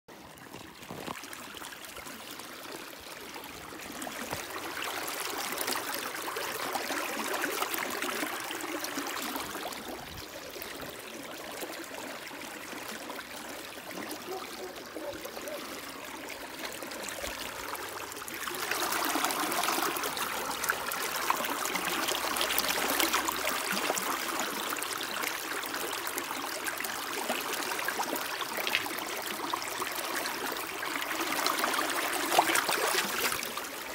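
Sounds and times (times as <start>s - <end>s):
irrigation water flowing: 0.1s - 33.9s.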